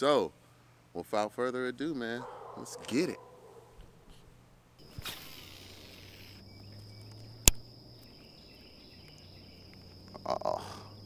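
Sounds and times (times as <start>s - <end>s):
insects buzzing: 2.0s - 11.0s
sharp click: 7.1s - 7.6s.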